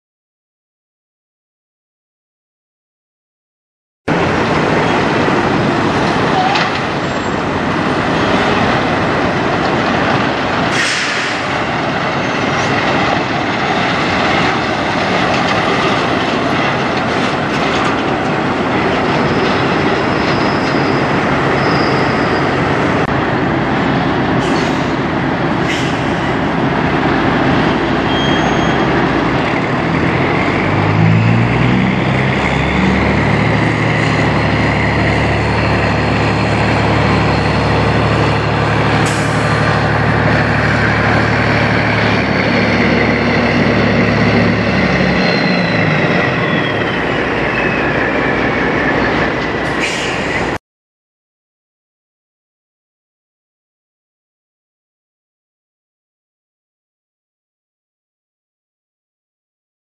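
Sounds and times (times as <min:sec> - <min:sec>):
heavy vehicle rumble: 0:04.1 - 0:50.6
truck diesel engine accelerating: 0:04.1 - 0:50.6
faint high squeals: 0:20.0 - 0:22.6, 0:28.1 - 0:28.9, 0:44.9 - 0:48.5.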